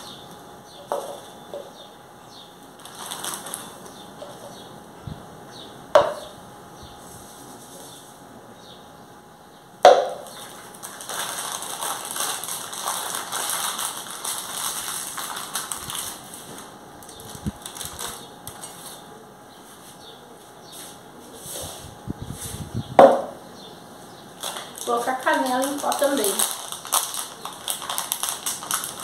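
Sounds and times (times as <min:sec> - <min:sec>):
foil packet crinkling: 0:02.8 - 0:04.5, 0:10.2 - 0:19.0, 0:24.4 - 0:29.0.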